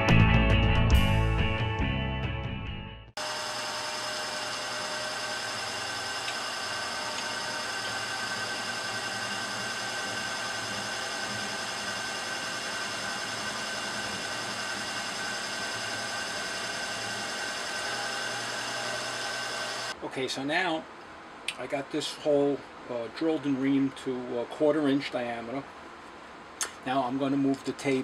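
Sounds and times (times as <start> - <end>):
milling machine spindle whining: 3.2 - 20.0.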